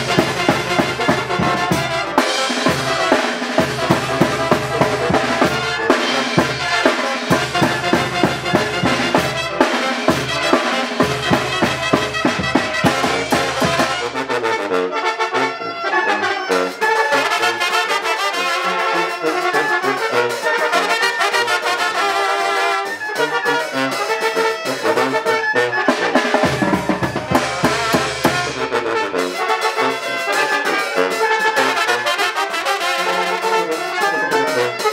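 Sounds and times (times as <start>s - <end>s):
bass drum and snare beat: 0.0s - 14.3s, 26.2s - 29.1s
brass band playing: 0.0s - 34.9s.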